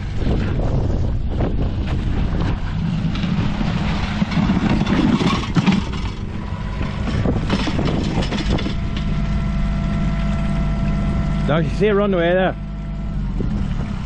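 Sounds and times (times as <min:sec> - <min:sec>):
excavator diesel engine running: 0:00.0 - 0:14.0
bucket knocking and scraping ground: 0:01.7 - 0:09.3
steady higher tone: 0:05.8 - 0:14.0.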